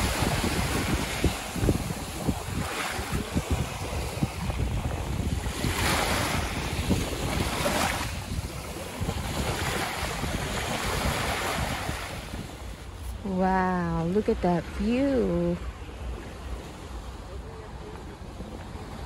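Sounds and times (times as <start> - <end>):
small waves breaking on beach: 0.0 - 13.4
wind buffeting microphone: 0.0 - 13.4.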